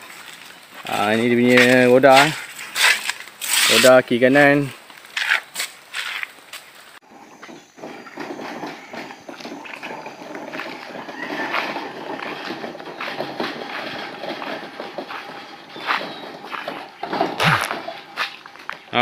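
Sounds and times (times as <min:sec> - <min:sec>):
metal gate rattling on its track: 0:07.8 - 0:19.0.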